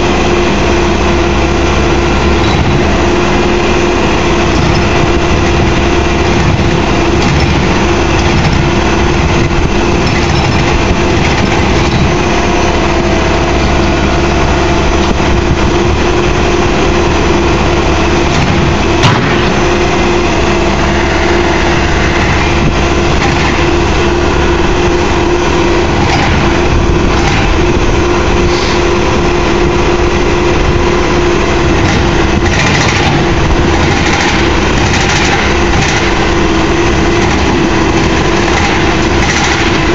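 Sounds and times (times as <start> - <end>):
constant humming tone: 0.0 - 39.9
diesel engine under load: 0.0 - 39.9.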